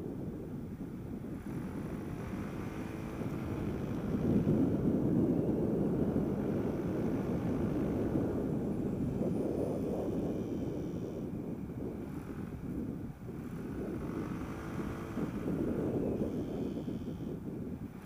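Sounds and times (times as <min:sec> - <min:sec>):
wind rushing over microphone: 0:00.0 - 0:18.0.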